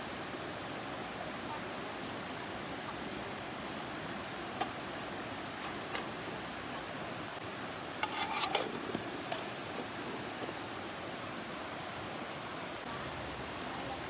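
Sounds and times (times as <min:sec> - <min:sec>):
background hiss: 0:00.0 - 0:14.0
metal lid clinking on tin: 0:08.0 - 0:08.7.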